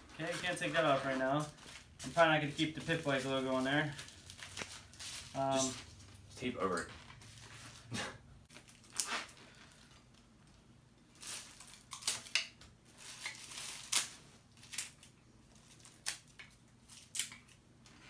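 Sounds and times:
packaging rustling and crinkling: 0.0s - 6.3s, 8.5s - 16.2s.

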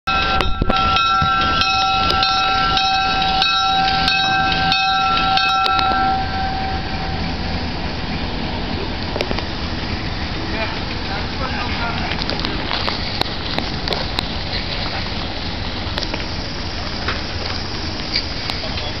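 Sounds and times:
locomotive bell ringing: 0.1s - 12.2s
locomotive engine rumble: 0.1s - 19.0s.

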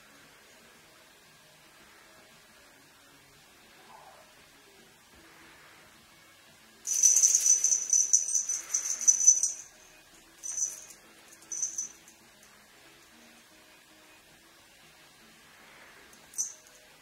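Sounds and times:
jingling rattle shaken: 6.9s - 9.8s, 10.4s - 12.2s, 16.2s - 16.8s.

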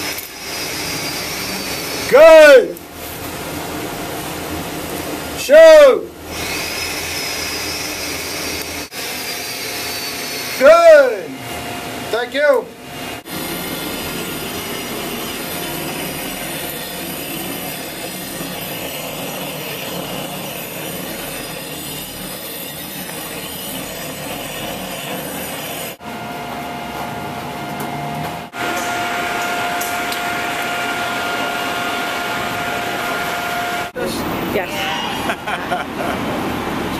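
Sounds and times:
gas torch flame hissing: 0.0s - 5.5s, 6.2s - 26.0s
machine hum: 0.0s - 36.9s.

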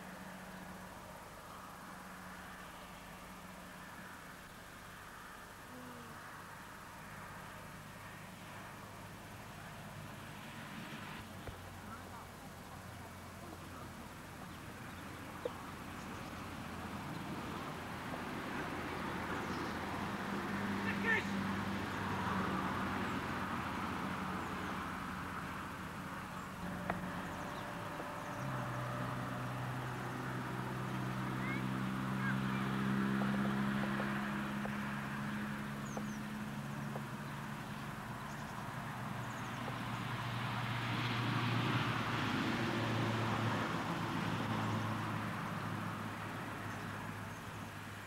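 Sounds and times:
vehicle passing by: 4.9s - 48.0s.

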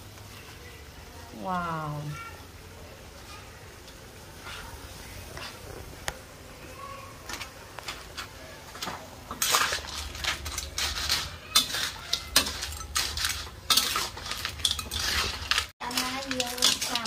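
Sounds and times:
metal spatula scraping a wok: 4.3s - 5.7s, 9.3s - 17.0s.

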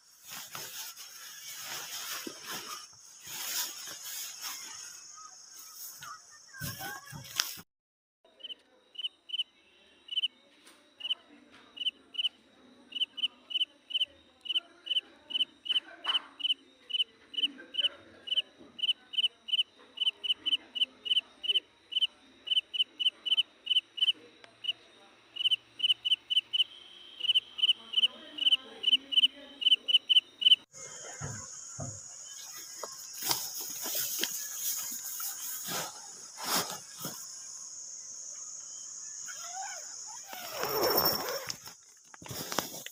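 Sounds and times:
insect chirping: 0.0s - 7.6s, 8.3s - 11.2s, 11.8s - 42.9s
hiss with knocks: 30.8s - 37.4s.

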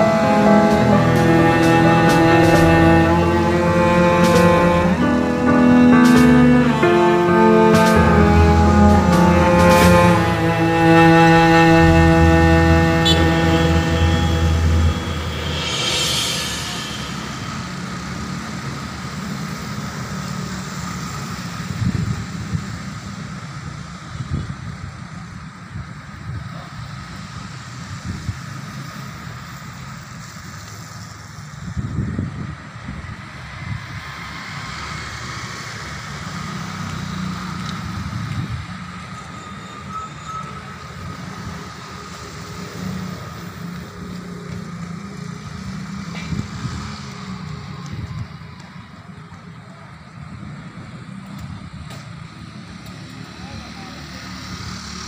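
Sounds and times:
vehicle engine humming: 0.0s - 19.3s
distant city traffic rumble: 0.0s - 55.0s.

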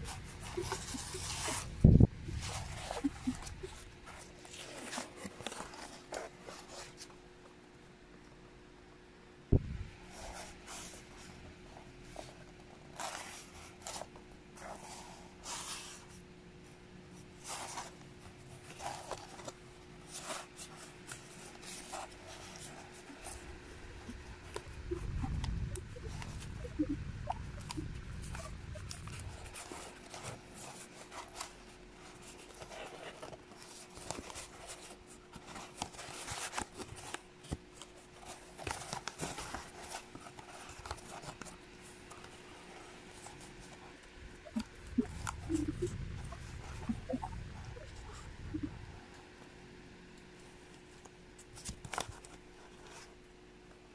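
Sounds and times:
cardboard rustling and scraping: 0.0s - 7.2s, 10.0s - 16.2s, 17.2s - 26.8s, 27.4s - 48.7s, 50.4s - 53.8s
low rumble: 44.7s - 49.0s.

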